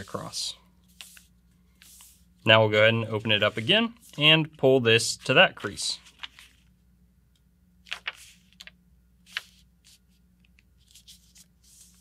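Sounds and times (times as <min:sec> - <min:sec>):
paper rustling: 0:05.6 - 0:06.7, 0:07.8 - 0:12.0
paper crinkling: 0:06.0 - 0:06.7, 0:07.8 - 0:12.0.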